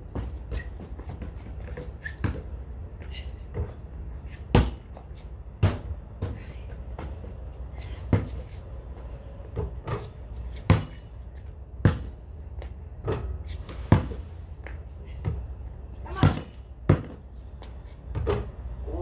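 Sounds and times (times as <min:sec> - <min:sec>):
basketball bouncing on concrete: 0:00.0 - 0:18.7
low background hum: 0:00.0 - 0:19.0
basketball striking hoop: 0:05.6 - 0:06.3, 0:11.8 - 0:12.1, 0:16.2 - 0:17.2.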